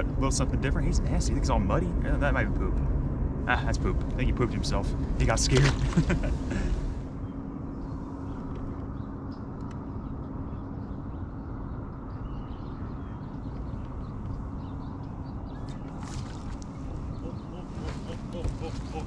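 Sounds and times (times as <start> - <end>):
faint constant hum: 0.0 - 19.0
low rumble: 0.0 - 19.0
faint bird chirps: 7.2 - 19.0.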